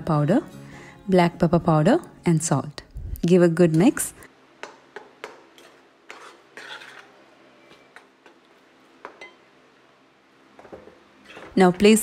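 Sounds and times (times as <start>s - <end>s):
metal spoon scraping paste in pan: 5.6s - 8.4s, 11.2s - 11.6s.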